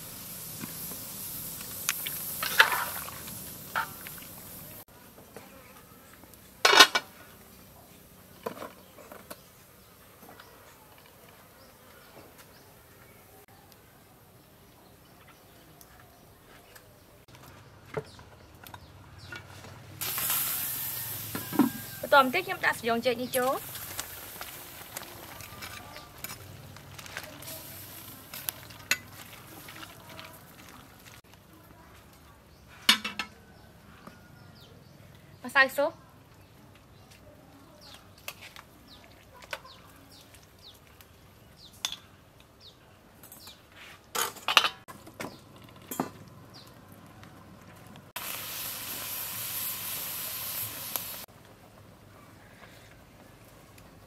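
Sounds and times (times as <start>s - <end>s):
soup bubbling in pot: 27.8s - 31.3s.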